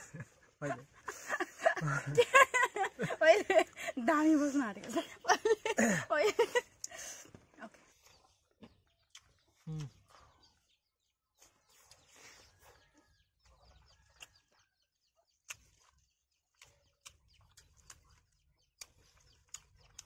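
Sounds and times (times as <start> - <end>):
people chewing and lip smacking: 5.8 - 20.0
mouth clicks: 9.0 - 10.3.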